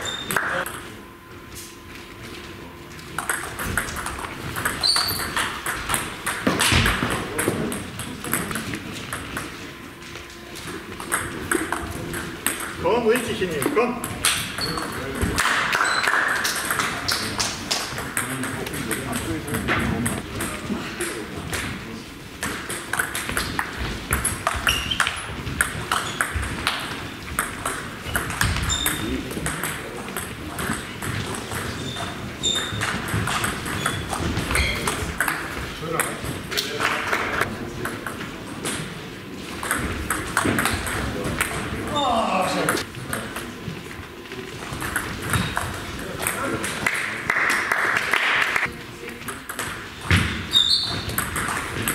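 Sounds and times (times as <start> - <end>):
shoes squeaking on floor: 0.0 - 0.4, 4.7 - 5.4, 14.6 - 14.9, 15.8 - 16.2, 24.4 - 25.3, 25.9 - 26.5, 28.0 - 29.2, 31.6 - 35.0, 50.1 - 51.2
table tennis balls clicking: 3.0 - 9.7, 10.6 - 21.8, 22.4 - 38.9, 39.6 - 42.0, 44.3 - 51.9
high squeak: 4.8 - 5.3, 50.5 - 51.1.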